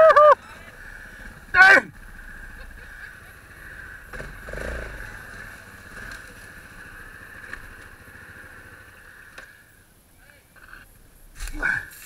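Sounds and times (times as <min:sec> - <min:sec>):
quad engine running: 0:00.4 - 0:09.8.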